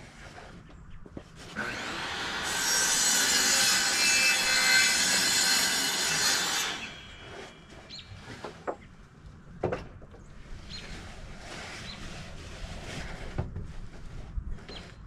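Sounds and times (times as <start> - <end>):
saw cutting wood: 1.4 - 8.7
knocks of wood being handled: 8.2 - 8.9, 9.5 - 10.3.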